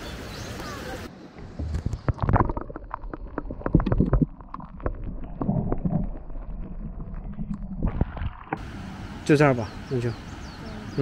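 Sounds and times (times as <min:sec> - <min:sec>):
underwater clicks and knocks: 0:01.4 - 0:08.6
muffled underwater stream: 0:01.4 - 0:09.2.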